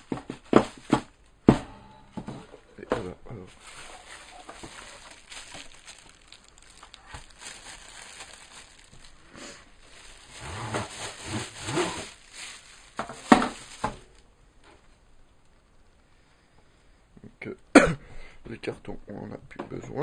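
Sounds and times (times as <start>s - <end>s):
packaging crinkling: 3.5s - 14.3s.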